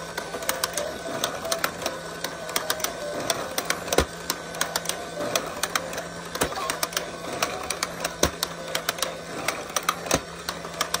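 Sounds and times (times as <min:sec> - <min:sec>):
toy game low hum: 0:00.0 - 0:11.0
plastic clicking of moles: 0:00.1 - 0:11.0.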